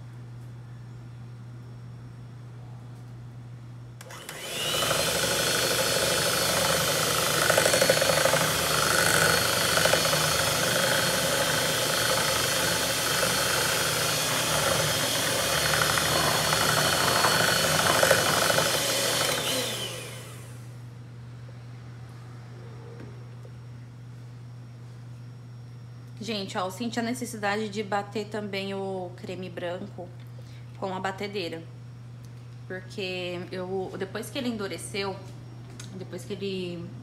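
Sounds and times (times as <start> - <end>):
electric hand mixer whisking: 4.0 - 20.8.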